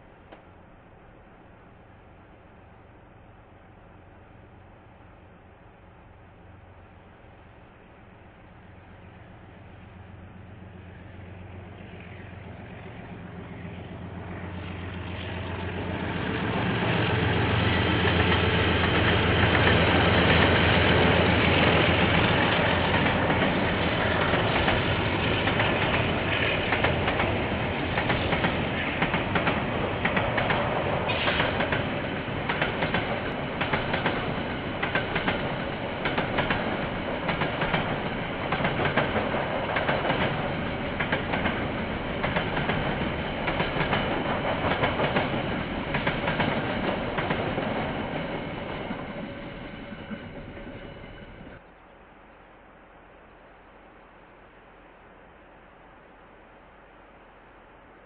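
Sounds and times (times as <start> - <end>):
diesel locomotive engine: 0.0 - 51.8
train wheels clickety-clack: 11.7 - 51.6.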